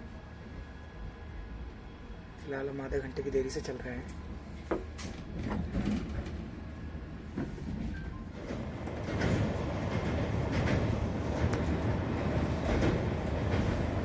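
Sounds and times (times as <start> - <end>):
train wheels rumbling on track: 4.1 - 14.0.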